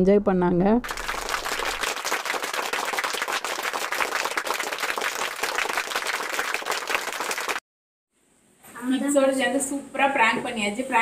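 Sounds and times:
hands clapping: 0:00.8 - 0:07.6.

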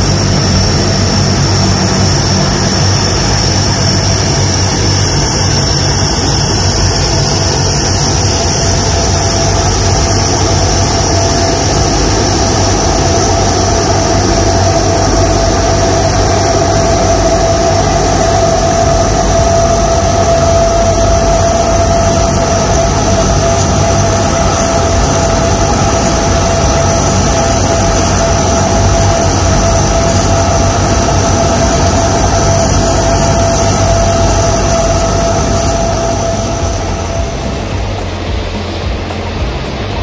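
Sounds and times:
high-pitched turbine whine: 0:00.0 - 0:40.0
propeller drone: 0:00.0 - 0:40.0.

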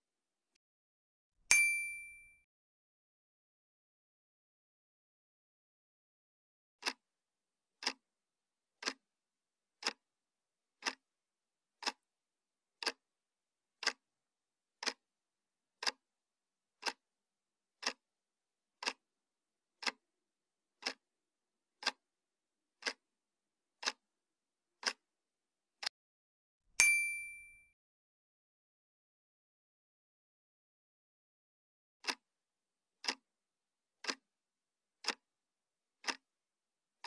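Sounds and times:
clock ticks: 0:06.8 - 0:07.1, 0:07.8 - 0:08.1, 0:08.8 - 0:09.1, 0:09.8 - 0:10.1, 0:10.8 - 0:11.1, 0:11.8 - 0:12.1, 0:12.8 - 0:13.1, 0:13.8 - 0:14.1, 0:14.8 - 0:15.1, 0:15.8 - 0:16.1, 0:16.8 - 0:17.1, 0:17.8 - 0:18.1, 0:18.8 - 0:19.1, 0:19.8 - 0:20.1, 0:20.8 - 0:21.1, 0:21.8 - 0:22.1, 0:22.8 - 0:23.1, 0:23.8 - 0:24.1, 0:24.8 - 0:25.1, 0:32.0 - 0:32.3, 0:33.0 - 0:33.3, 0:34.0 - 0:34.3, 0:35.0 - 0:35.3, 0:36.0 - 0:36.3.

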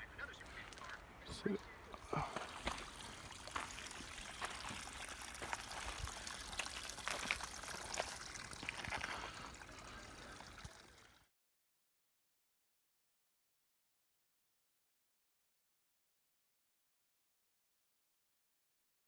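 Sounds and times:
footsteps on gravel: 0:00.4 - 0:09.4.

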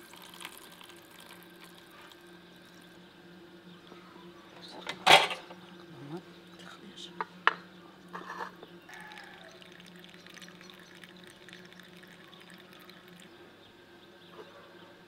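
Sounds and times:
whey trickling and dripping: 0:00.0 - 0:03.1, 0:08.9 - 0:13.6
steady low hum: 0:00.0 - 0:15.0.

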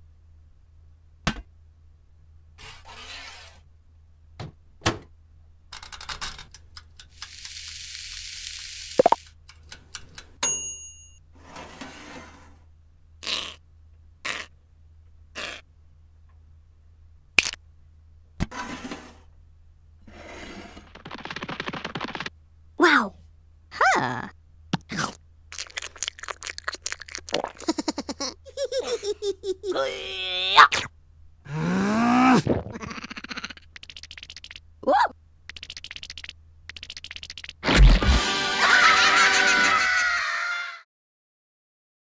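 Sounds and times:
hiss: 0:07.1 - 0:09.3
timer bell ding: 0:10.4 - 0:11.2.

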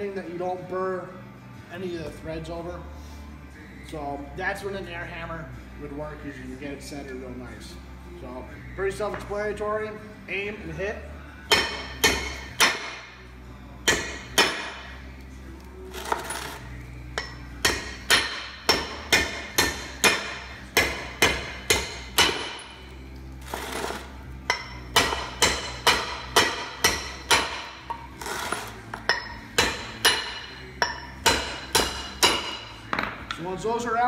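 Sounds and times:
hammer striking steel: 0:11.5 - 0:13.2, 0:13.8 - 0:15.0, 0:17.2 - 0:22.9, 0:24.5 - 0:33.4.

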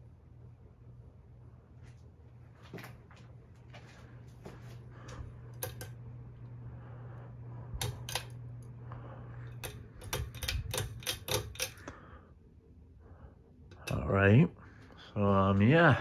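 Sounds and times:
ceiling fan motor humming: 0:00.0 - 0:16.0
sharp clicks: 0:07.8 - 0:08.7, 0:09.5 - 0:12.0.

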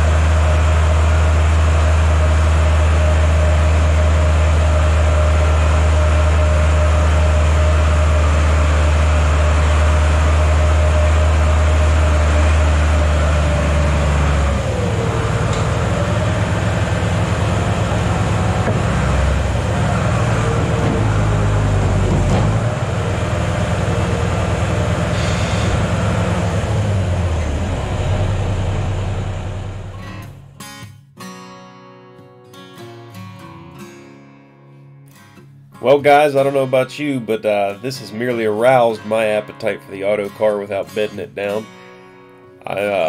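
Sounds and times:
heavy vehicle engine running: 0:00.0 - 0:30.7
wavering whine: 0:00.0 - 0:30.7
acoustic guitar music: 0:00.0 - 0:43.0.

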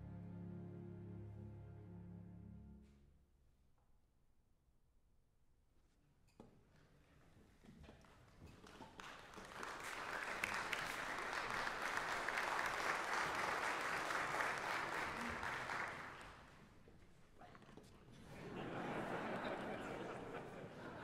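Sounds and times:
audience applauding: 0:08.6 - 0:16.6.

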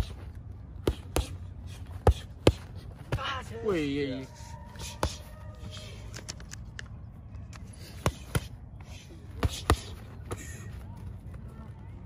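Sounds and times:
punches smacking focus mitts: 0:00.8 - 0:01.4.

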